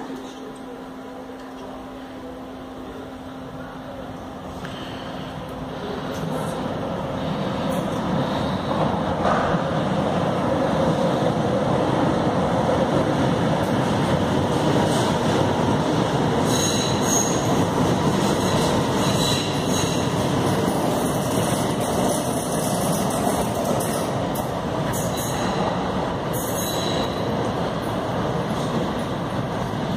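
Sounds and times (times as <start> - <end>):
train wheels rumbling on rail: 4.0 - 29.9
train wheel squeal: 16.4 - 17.7, 18.4 - 20.2, 24.9 - 25.7, 26.4 - 27.3.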